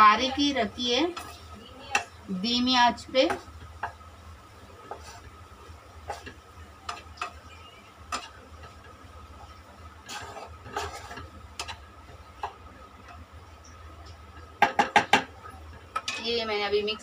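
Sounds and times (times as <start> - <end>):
faint steady hum: 0.0 - 17.0
wooden spoon scraping a pan: 0.3 - 2.0, 4.8 - 12.6.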